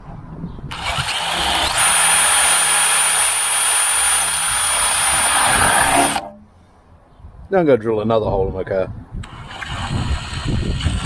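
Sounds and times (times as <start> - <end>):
cordless drill boring metal: 0.7 - 6.3, 9.2 - 11.0.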